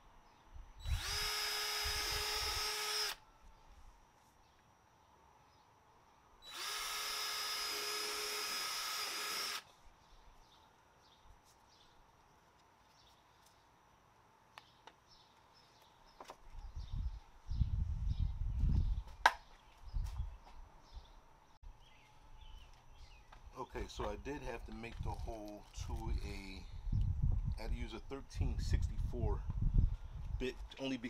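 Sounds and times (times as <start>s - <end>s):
power drill whining: 0.8s - 3.2s, 6.4s - 9.7s.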